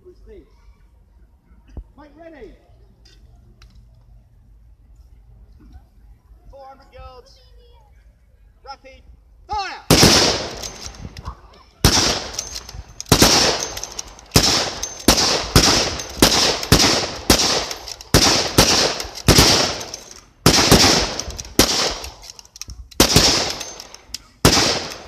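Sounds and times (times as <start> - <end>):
rifle shots with echo: 9.9 - 11.0, 11.8 - 22.4, 23.0 - 25.0.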